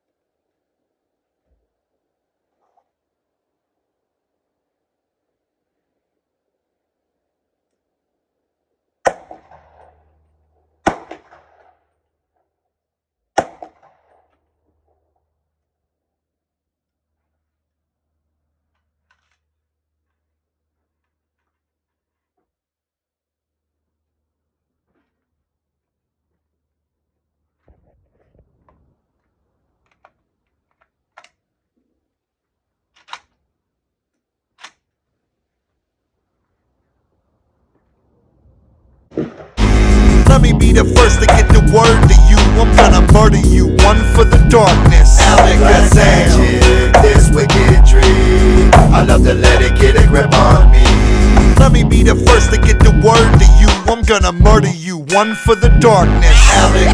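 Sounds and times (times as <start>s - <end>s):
rifle shots echoing: 10.8s - 11.8s.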